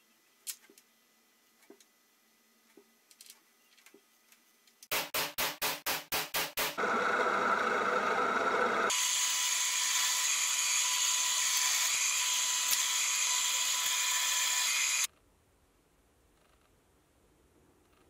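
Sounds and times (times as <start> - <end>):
electric drill boring through metal: 6.8 - 15.1.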